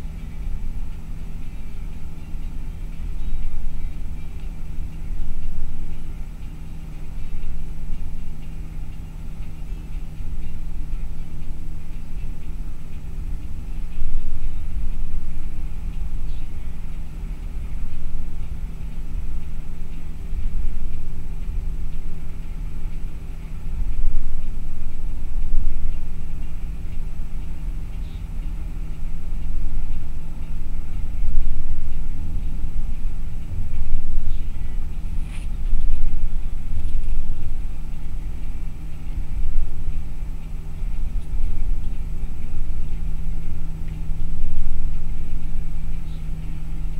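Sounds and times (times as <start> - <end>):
bus engine drone: 0.0 - 46.9
road rumble: 0.0 - 46.9.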